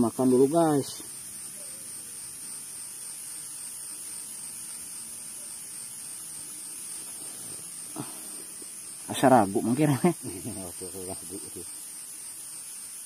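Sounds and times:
steady high-pitched hiss: 0.0 - 13.0.

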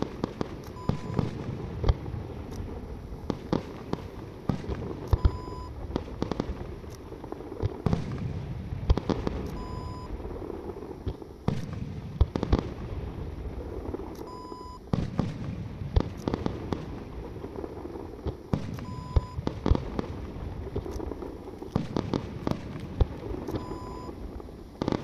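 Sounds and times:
fireworks bangs and crackles: 0.0 - 25.0
short electronic beep: 5.2 - 5.7, 9.6 - 10.1, 14.3 - 14.8, 18.8 - 19.4, 23.6 - 24.1.

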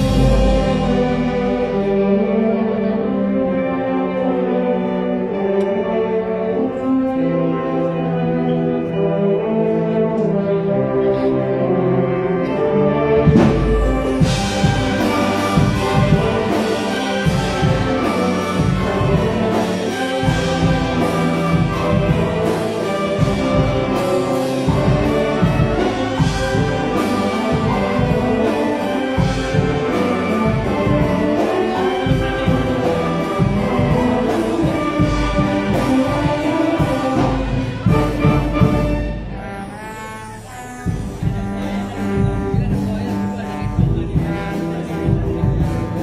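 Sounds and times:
steady drum beat: 0.0 - 2.5, 13.2 - 39.5, 40.8 - 46.0
concert band playing pop medley: 0.0 - 4.1, 12.1 - 46.0.

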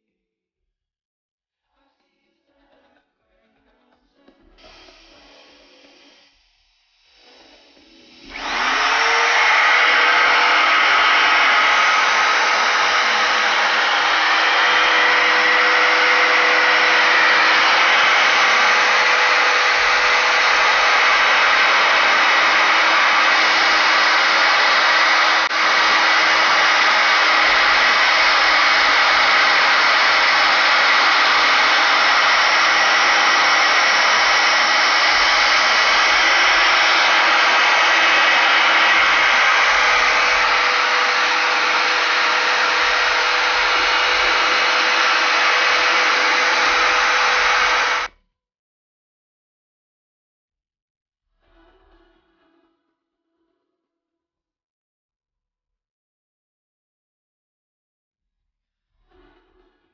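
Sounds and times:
electric planer whining: 8.1 - 48.1.

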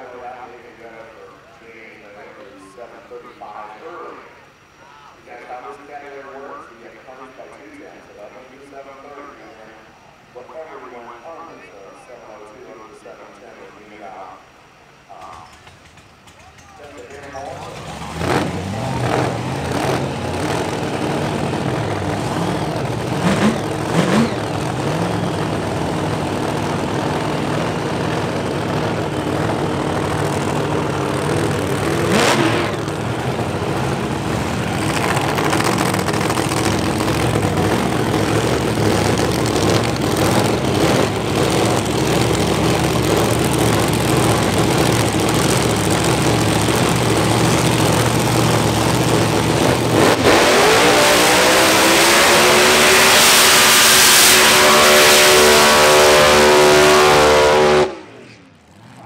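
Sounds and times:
racing car engine idling: 14.8 - 51.0.

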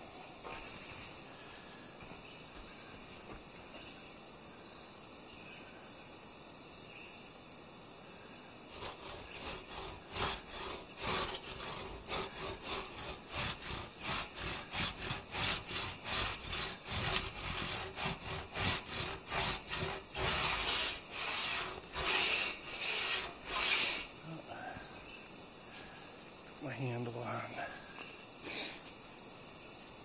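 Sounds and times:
crosscut saw rasping through log: 8.7 - 24.2.

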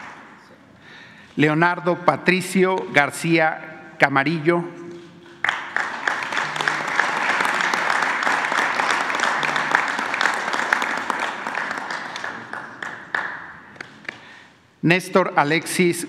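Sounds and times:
audience applauding: 0.0 - 0.3, 4.9 - 14.4.

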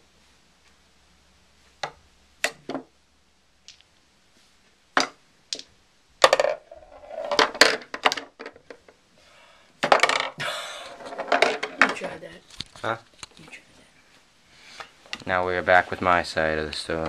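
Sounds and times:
pool balls clattering: 4.9 - 9.0, 9.8 - 12.4.

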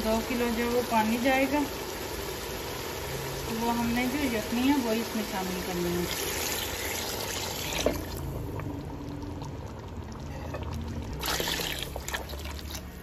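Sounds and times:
stock pouring and splashing: 6.0 - 13.0.

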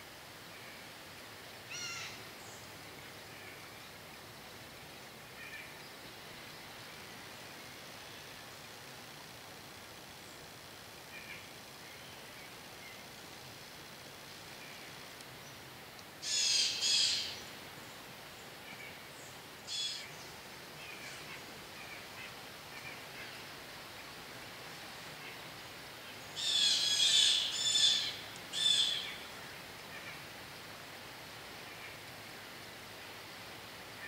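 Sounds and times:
faint woodland hiss: 0.0 - 34.0
bird harsh calls: 16.2 - 17.4.

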